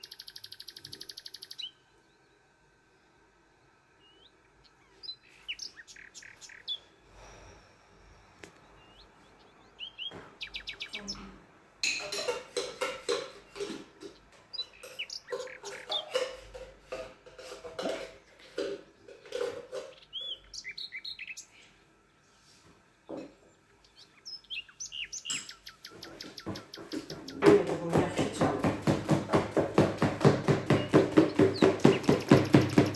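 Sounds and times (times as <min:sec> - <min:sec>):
small bird chirping: 0:00.0 - 0:02.4, 0:04.0 - 0:07.0, 0:08.6 - 0:11.4, 0:19.9 - 0:21.7, 0:23.8 - 0:27.4
spoon scraping a tin: 0:12.0 - 0:20.0.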